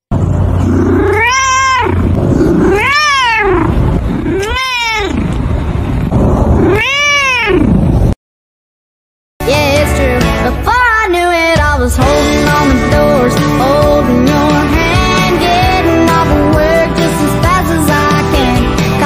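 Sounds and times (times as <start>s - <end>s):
steady low rumble: 0.1s - 8.2s
cat meowing: 0.6s - 5.4s, 6.6s - 7.8s.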